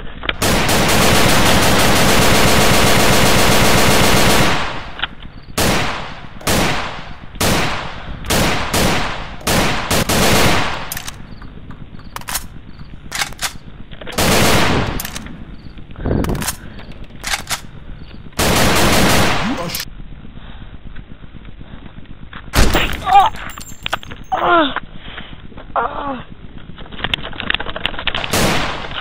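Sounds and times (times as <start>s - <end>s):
gunshots and automatic fire: 0.0s - 19.9s, 28.1s - 29.0s.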